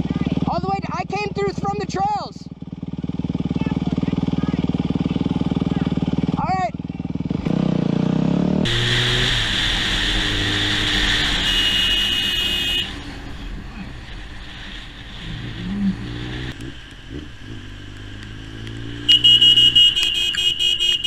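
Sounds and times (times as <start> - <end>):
motorcycle engine running: 0.0 - 21.0
loud rushing noise: 8.7 - 17.5
vehicle horn blaring: 11.1 - 13.1, 19.0 - 21.0.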